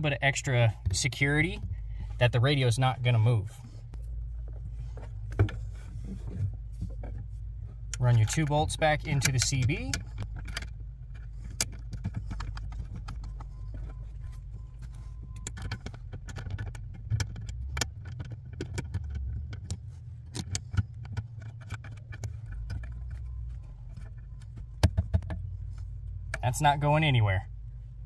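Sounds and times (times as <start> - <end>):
steady low hum: 0.0 - 28.0
metal hardware clicks and knocks: 7.9 - 26.5.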